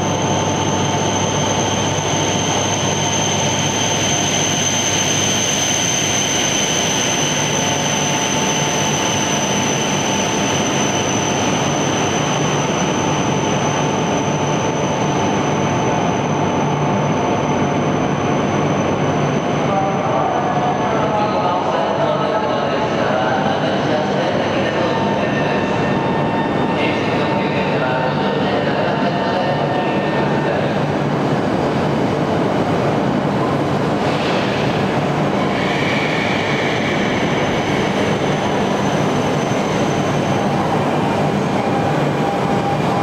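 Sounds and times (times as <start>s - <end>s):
train running noise: 0.0s - 43.0s.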